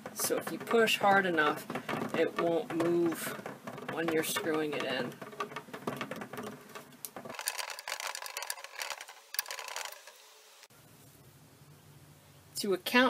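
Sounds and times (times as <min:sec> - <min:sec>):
screwdriver clicking and scraping: 0:07.0 - 0:10.2.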